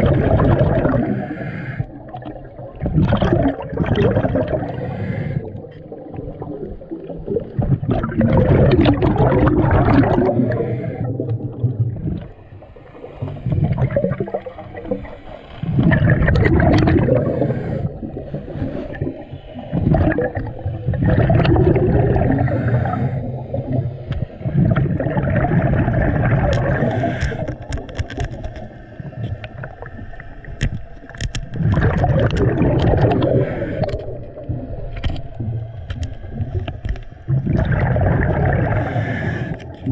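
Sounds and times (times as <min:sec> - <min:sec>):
underwater bubbling of exhaled breath: 0:00.0 - 0:39.9.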